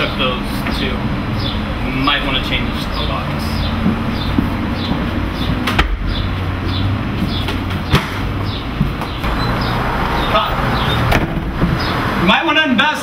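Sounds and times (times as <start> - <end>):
sharp knocks: 3.8 - 6.3, 7.2 - 9.4.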